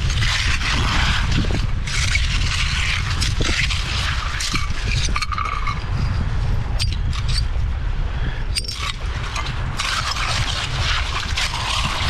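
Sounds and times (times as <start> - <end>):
shovel scraping through wet pebbles: 0.0 - 5.8, 8.6 - 12.0
steady low rumble: 0.0 - 12.0.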